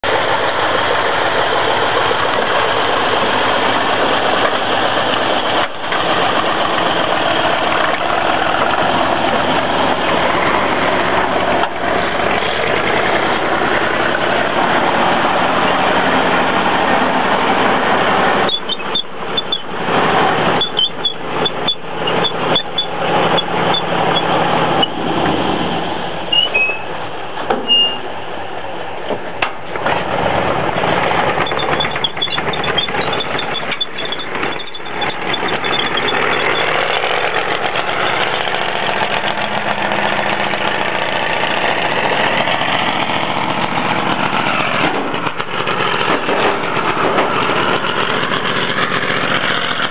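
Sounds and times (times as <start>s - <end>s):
track clatter: 0.0s - 28.2s, 28.8s - 49.9s
tank engine running: 0.0s - 49.9s
short high squeaks: 18.5s - 19.7s, 20.6s - 25.0s, 26.3s - 27.0s, 27.6s - 28.2s, 31.4s - 37.2s.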